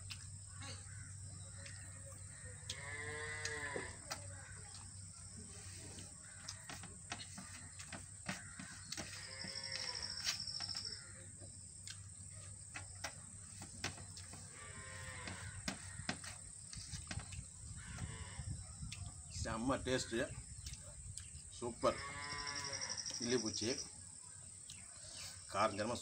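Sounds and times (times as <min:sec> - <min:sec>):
drawn-out animal calls: 0:00.0 - 0:11.4, 0:12.3 - 0:18.6.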